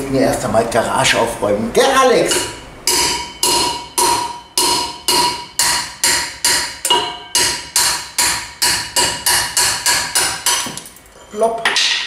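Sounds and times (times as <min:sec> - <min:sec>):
hammer striking steel drift: 0:02.3 - 0:10.8.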